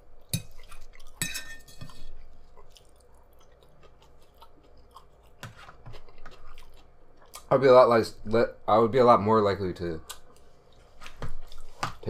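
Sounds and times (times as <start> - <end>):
fork clinking on plate: 1.2 - 2.0
quiet chewing: 1.8 - 7.5, 10.0 - 11.8.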